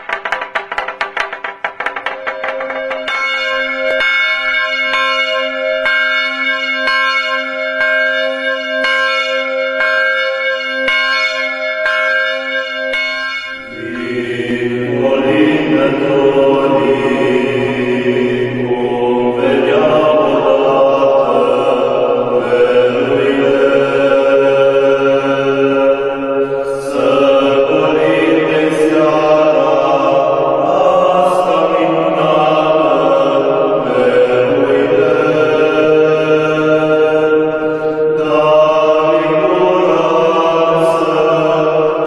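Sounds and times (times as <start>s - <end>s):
wooden semantron strikes: 0.0s - 4.2s
church bell tolling: 0.0s - 42.0s
men singing a carol: 13.6s - 42.0s.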